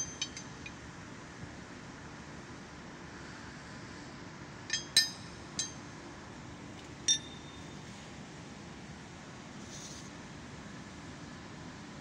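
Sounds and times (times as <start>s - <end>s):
steel brackets clinking: 0.0s - 0.8s.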